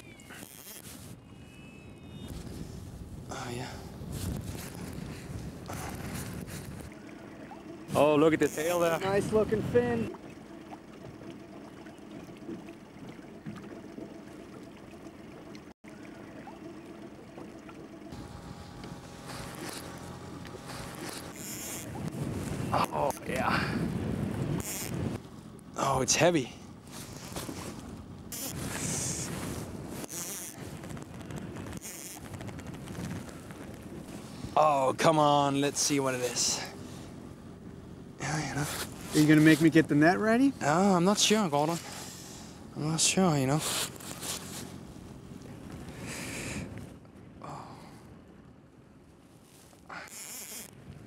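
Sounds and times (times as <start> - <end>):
fishing reel drag buzzing: 0.0 - 2.3, 19.2 - 22.0, 24.5 - 25.1, 28.3 - 29.3, 30.0 - 30.7, 31.6 - 32.7, 49.9 - 50.8
water lapping against boat hull: 0.0 - 51.0
low steady hum: 0.1 - 49.9
wind noise: 1.8 - 6.9, 20.7 - 25.2, 28.5 - 34.6.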